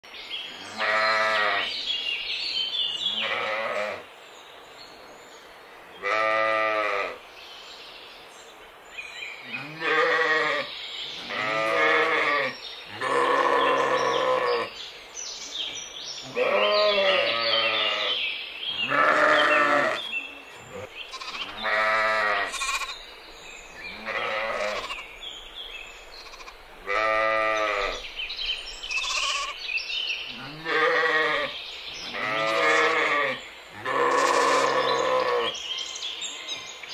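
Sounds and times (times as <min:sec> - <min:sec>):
sheep bleating: 0:00.7 - 0:01.7, 0:03.1 - 0:04.0, 0:06.0 - 0:07.2, 0:09.6 - 0:14.7, 0:16.3 - 0:18.2, 0:18.8 - 0:20.1, 0:20.7 - 0:23.0, 0:23.9 - 0:25.1, 0:26.2 - 0:28.0, 0:28.9 - 0:29.6, 0:30.3 - 0:31.5, 0:32.1 - 0:35.6.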